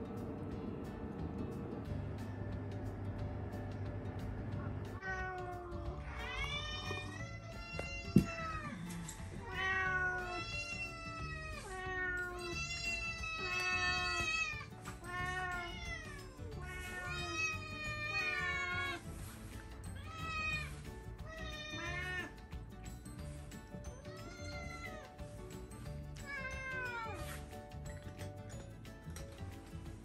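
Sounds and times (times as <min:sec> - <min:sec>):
cats meowing: 0:05.0 - 0:19.1, 0:20.0 - 0:22.6, 0:24.0 - 0:25.2, 0:26.2 - 0:27.4.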